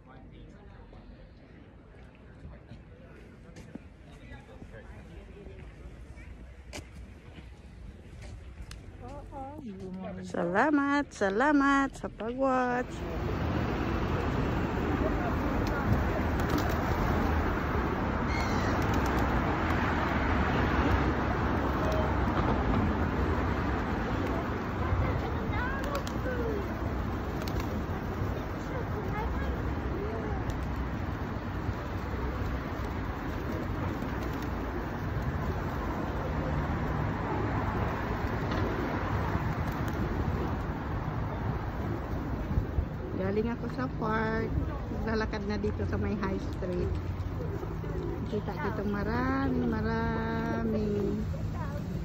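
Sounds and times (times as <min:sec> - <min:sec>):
road traffic hum: 0:03.0 - 0:52.0
passing cars rumble: 0:12.7 - 0:52.0.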